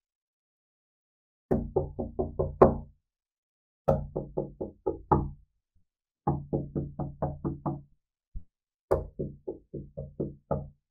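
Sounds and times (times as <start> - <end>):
knocking on wooden door: 1.5 - 2.9, 3.9 - 5.4, 6.3 - 7.8, 8.9 - 10.8.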